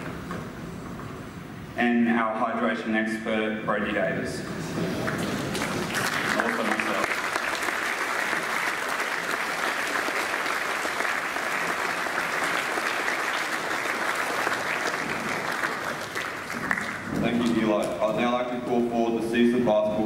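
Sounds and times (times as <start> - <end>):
audience applause: 4.6 - 17.8.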